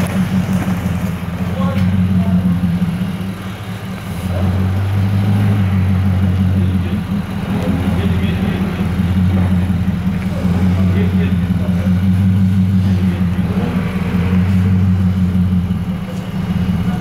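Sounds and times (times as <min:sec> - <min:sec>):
car exhaust droning: 0:00.0 - 0:17.0.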